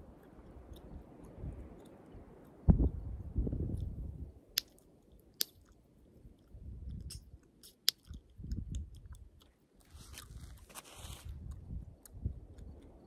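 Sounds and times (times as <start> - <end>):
chewing gum: 0.0 - 2.6, 4.6 - 13.0
gum pops: 6.4 - 9.6.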